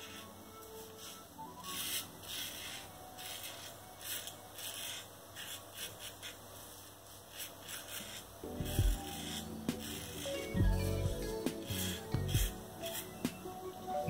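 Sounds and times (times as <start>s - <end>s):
razor scraping stubble: 0.0s - 13.5s.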